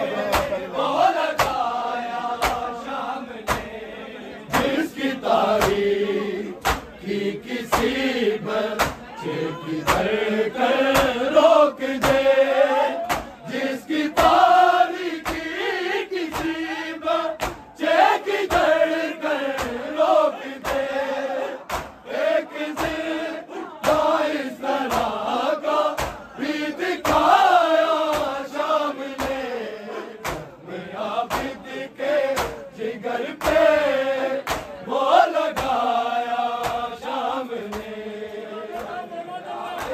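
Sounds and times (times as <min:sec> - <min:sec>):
men chanting in unison: 0:00.0 - 0:39.9
hands beating on chests: 0:01.3 - 0:01.7, 0:02.4 - 0:02.8, 0:06.6 - 0:07.0, 0:08.8 - 0:09.1, 0:09.8 - 0:10.1, 0:12.0 - 0:12.4, 0:13.0 - 0:13.4, 0:21.6 - 0:22.0, 0:31.3 - 0:31.6, 0:33.4 - 0:33.8.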